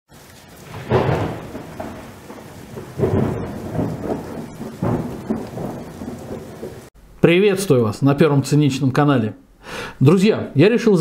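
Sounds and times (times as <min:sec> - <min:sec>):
thunder rumbling: 0:00.1 - 0:06.9
steady rain: 0:00.1 - 0:07.0.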